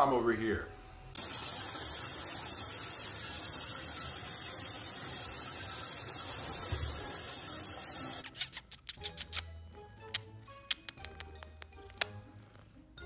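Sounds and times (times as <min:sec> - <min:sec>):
water spray running: 0:01.2 - 0:08.2.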